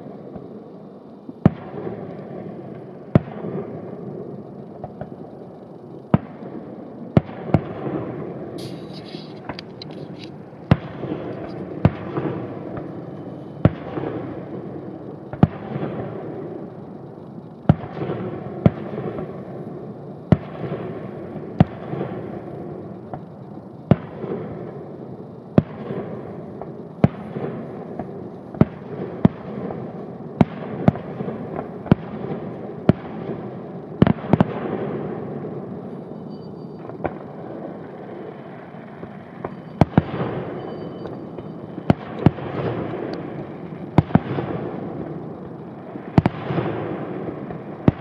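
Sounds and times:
continuous rumble: 0.0 - 48.0
fireworks shells bursting: 8.6 - 14.6, 38.0 - 48.0.

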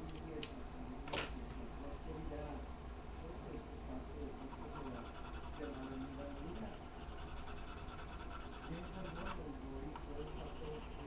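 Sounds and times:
colored pencil scratching on paper: 4.4 - 9.4, 10.1 - 11.0.

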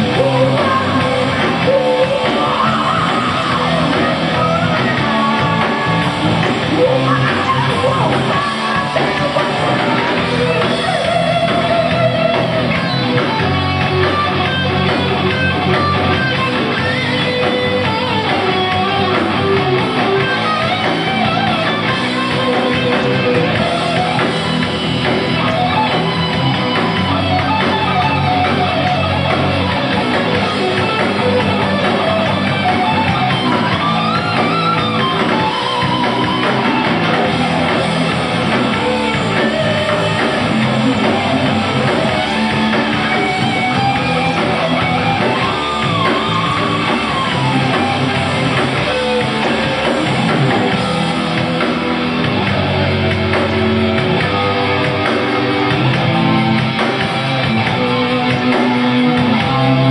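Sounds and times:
distorted electric guitar lead: 0.0 - 59.9
heavy metal band playing live: 0.0 - 59.9.

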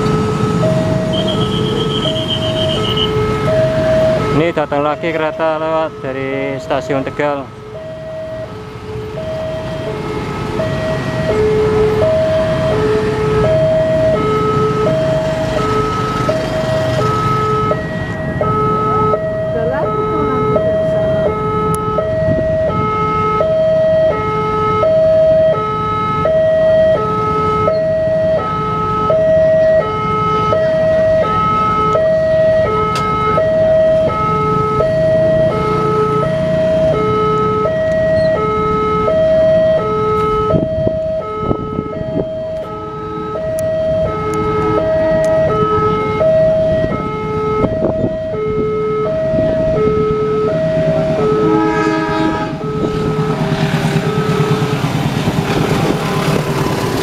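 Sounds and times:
level crossing alarm two tones: 0.1 - 8.5.

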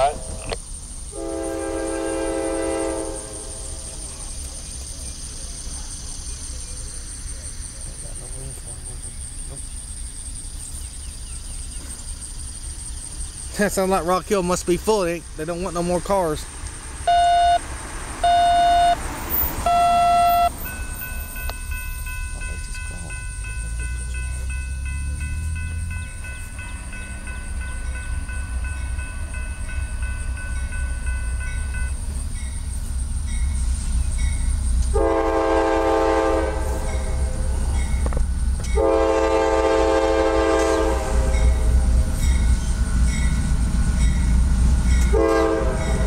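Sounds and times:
diesel train rumbling: 0.0 - 46.0
train air horn blasts: 1.1 - 4.0, 19.6 - 20.8, 34.9 - 37.5, 38.8 - 41.8, 45.0 - 46.0.

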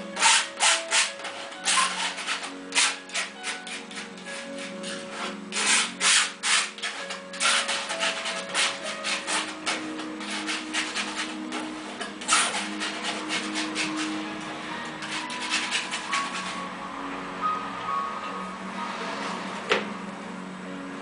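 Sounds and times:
palette knife scraping canvas: 0.0 - 16.7.

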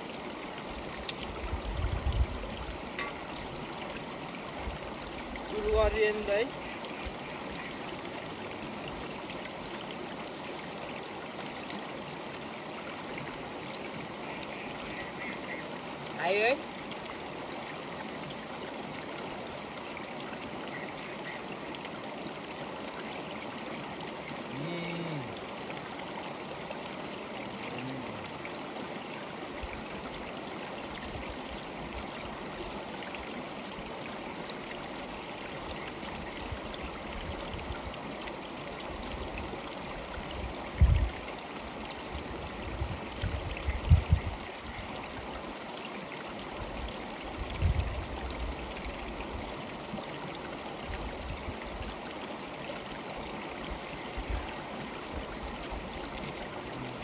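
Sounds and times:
river water rushing: 0.0 - 57.0.

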